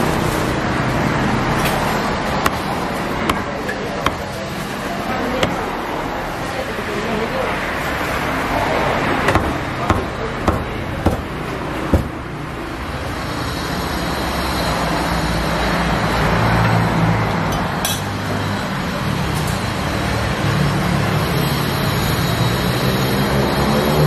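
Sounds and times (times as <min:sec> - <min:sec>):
street traffic noise: 0:00.0 - 0:24.0
cleaver chopping on wooden block: 0:02.4 - 0:04.5, 0:05.4 - 0:05.7, 0:09.3 - 0:12.2.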